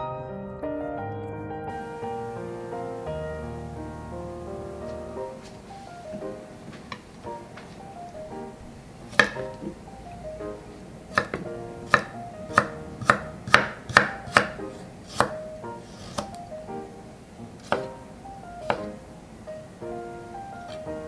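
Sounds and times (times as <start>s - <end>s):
knife knocking on cutting board: 11.2s - 14.6s.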